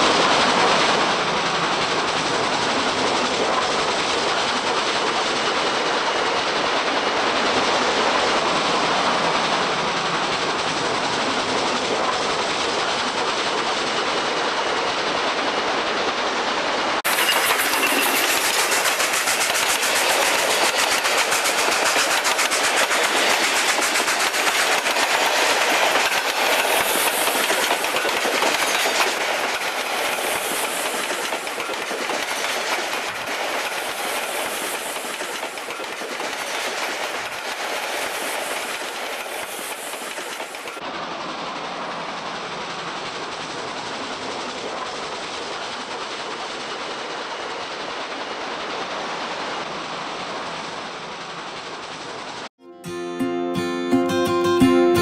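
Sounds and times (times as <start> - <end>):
steam train running: 0.0 - 52.5.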